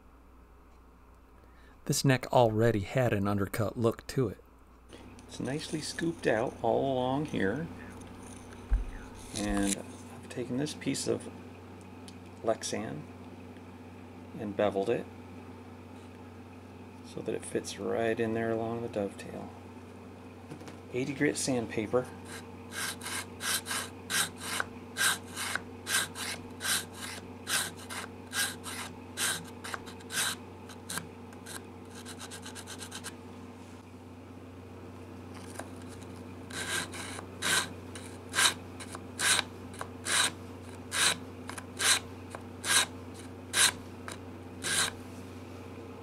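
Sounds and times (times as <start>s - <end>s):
steady low hum: 0.0s - 46.0s
sandpaper rubbing on wood: 22.3s - 33.1s, 36.5s - 41.2s, 41.8s - 42.0s, 42.6s - 43.8s, 44.6s - 45.0s.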